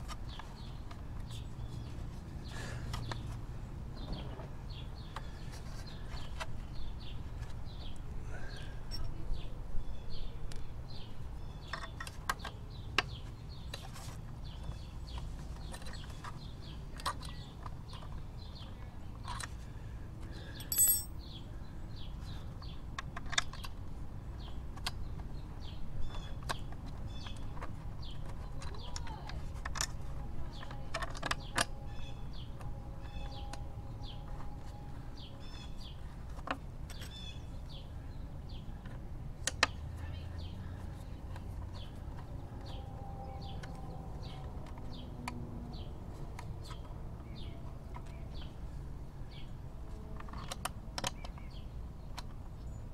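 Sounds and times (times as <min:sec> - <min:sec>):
birds chirping: 0:20.3 - 0:22.8
metallic ring: 0:20.6 - 0:21.1
hex key and screws clinking: 0:20.6 - 0:21.2.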